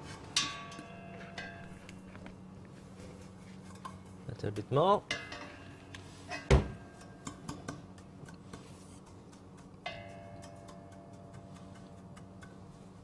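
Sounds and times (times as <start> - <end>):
spatula clicking while stirring: 6.9 - 13.0.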